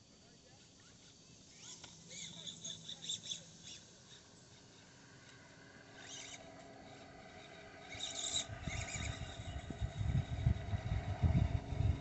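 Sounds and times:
small electric motor whine: 0.0 - 12.0
low rumble: 9.2 - 12.0.

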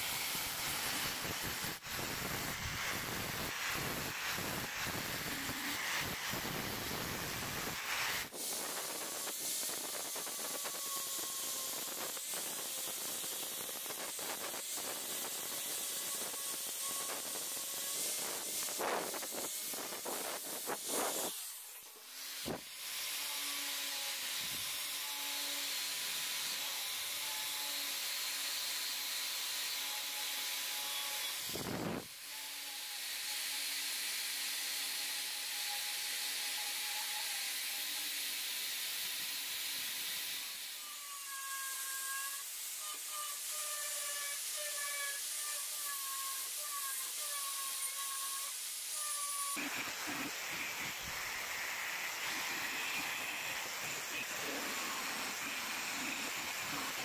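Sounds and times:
angle grinder sanding steel: 0.0 - 31.6, 32.4 - 57.0
grinder motor whine: 49.5 - 57.0.

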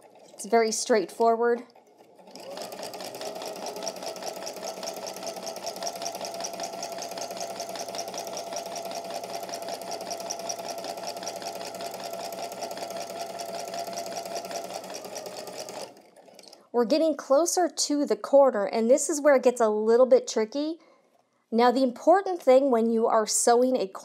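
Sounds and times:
sewing machine running: 0.0 - 16.7.

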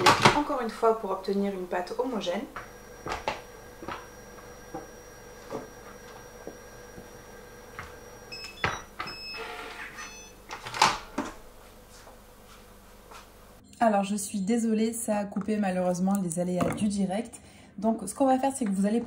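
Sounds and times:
food processor whine: 0.0 - 10.5.

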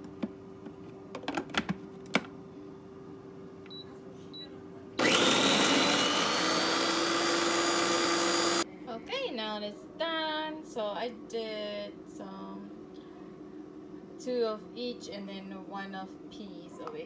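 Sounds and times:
blender motor whining: 5.0 - 8.6.

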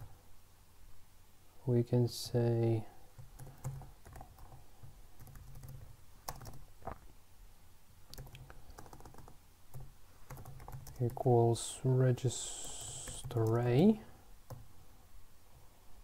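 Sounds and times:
typing on a computer keyboard: 3.2 - 6.6, 8.1 - 11.2, 12.8 - 13.6.

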